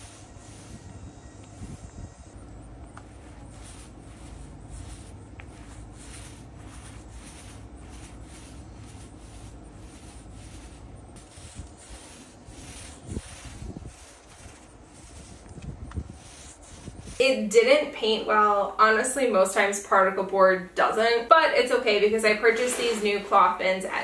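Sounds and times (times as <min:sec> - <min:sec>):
paint roller swishing on board: 0:00.0 - 0:01.9, 0:03.0 - 0:18.4, 0:22.4 - 0:23.5.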